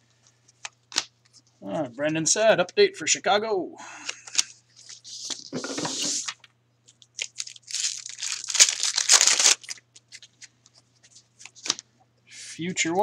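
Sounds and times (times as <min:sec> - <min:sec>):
foil pack tearing and crinkling: 0:07.2 - 0:10.3.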